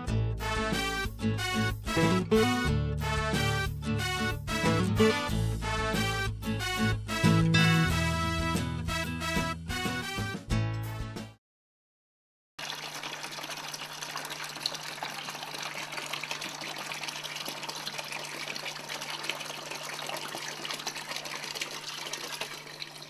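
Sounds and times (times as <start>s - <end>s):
water pouring into plastic bucket: 12.6s - 23.0s.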